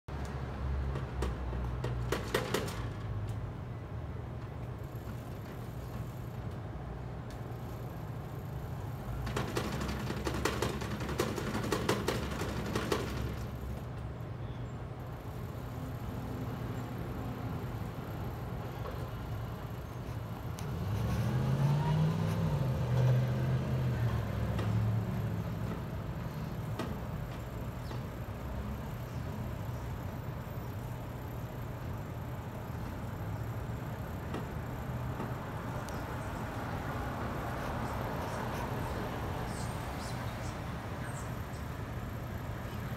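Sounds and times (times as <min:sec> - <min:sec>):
traffic hum: 0:00.0 - 0:42.9
motor vehicle passing: 0:15.7 - 0:29.8, 0:33.0 - 0:42.9.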